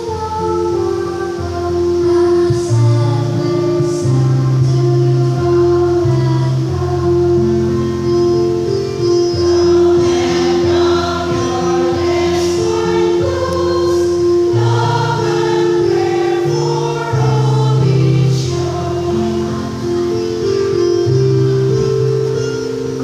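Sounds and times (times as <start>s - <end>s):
women's choir singing: 9.3s - 20.8s.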